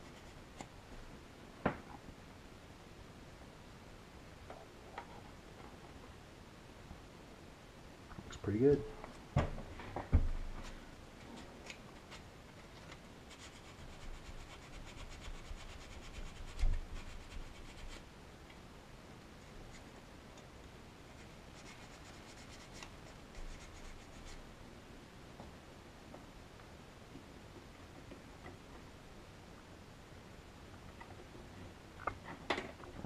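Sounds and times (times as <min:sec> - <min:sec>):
hands rubbing and scratching: 0:11.2 - 0:18.0, 0:21.1 - 0:24.4.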